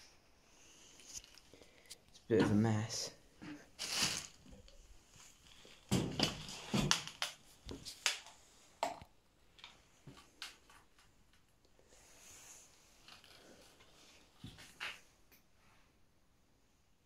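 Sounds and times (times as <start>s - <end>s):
debris knocking and rustling: 5.6s - 7.2s.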